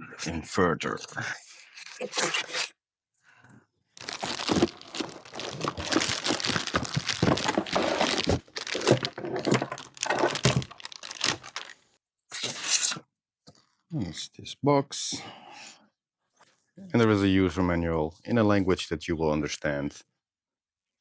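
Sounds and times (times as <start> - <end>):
small knocks and scrapes: 4.0 - 11.7
cardboard packaging rustling: 4.0 - 11.8
plastic wrapping crinkling: 4.0 - 11.9.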